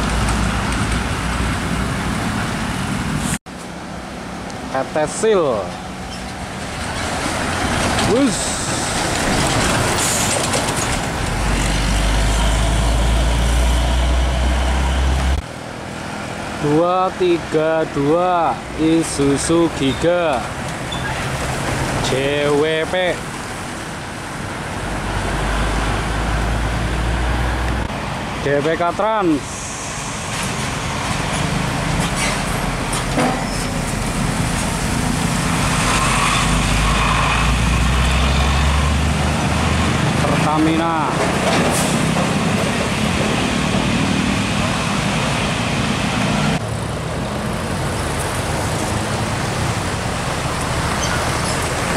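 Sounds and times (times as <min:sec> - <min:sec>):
passing road traffic: 0:00.0 - 0:51.9
truck diesel engine labouring: 0:00.0 - 0:51.9.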